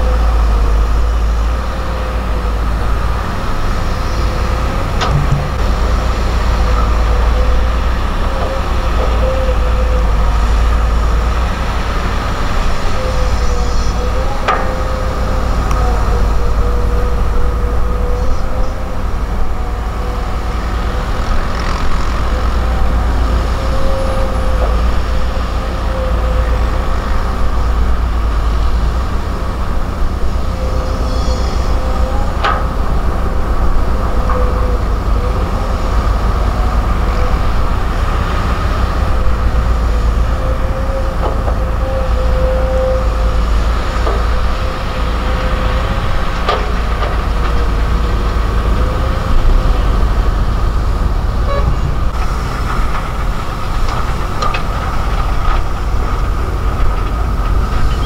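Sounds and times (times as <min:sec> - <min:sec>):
excavator diesel engine rumbling: 0:00.0 - 0:58.0
steady engine whine: 0:00.0 - 0:58.0
sharp knocks: 0:05.0 - 0:05.7.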